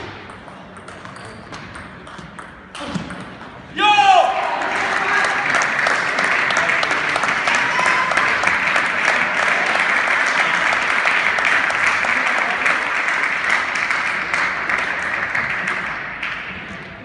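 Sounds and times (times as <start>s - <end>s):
audience clapping: 4.4s - 16.8s.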